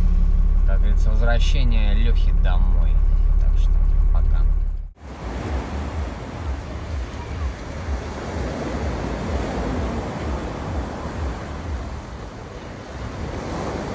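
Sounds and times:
wind buffeting microphone: 5.0s - 13.9s.

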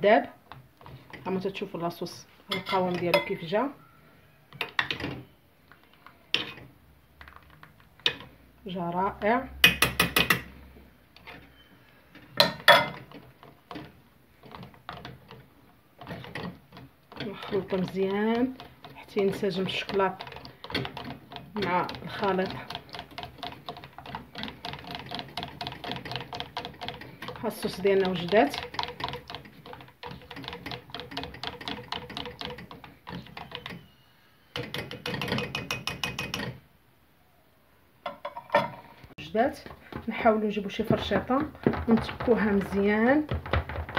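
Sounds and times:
whisk scraping metal pot: 2.5s - 3.5s, 12.4s - 36.6s, 39.7s - 43.3s.

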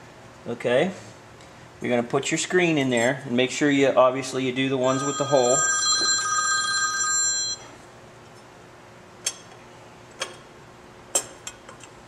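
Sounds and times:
telephone ringing: 4.8s - 7.8s.

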